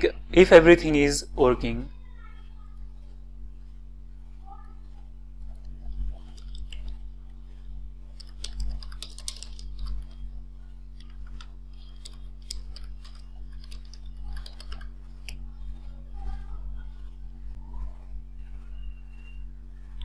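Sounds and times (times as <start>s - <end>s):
low electrical hum: 0.0s - 20.0s
keyboard keys clicking: 6.2s - 7.0s, 8.2s - 10.2s, 11.0s - 15.4s.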